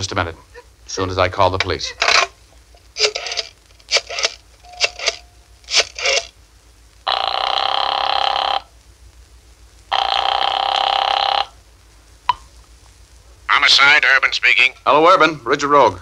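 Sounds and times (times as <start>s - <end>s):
telephone bell ringing: 4.6s - 5.4s.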